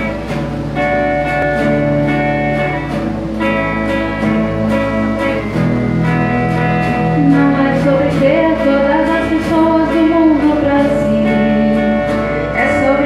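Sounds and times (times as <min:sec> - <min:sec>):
guitars strumming chords: 0:00.0 - 0:13.0
person singing: 0:07.1 - 0:13.0.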